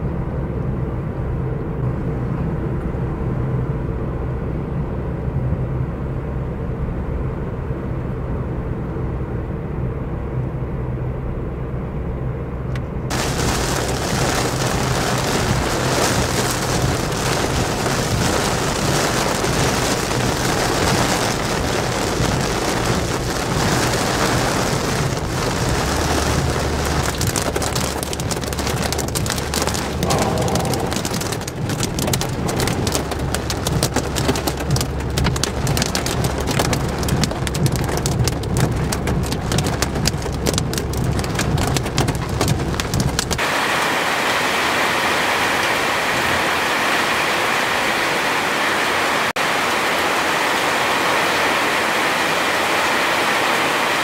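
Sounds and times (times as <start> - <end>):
car engine and road hum: 0.0 - 54.0
heavy rain drumming on car roof: 13.1 - 54.0.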